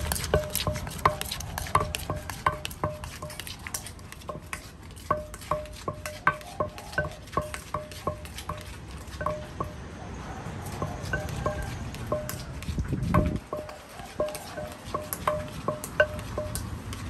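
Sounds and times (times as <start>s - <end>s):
spoon turning food in mortar: 0.0s - 9.8s
wooden pestle pounding in mortar: 0.0s - 9.8s, 10.8s - 17.0s.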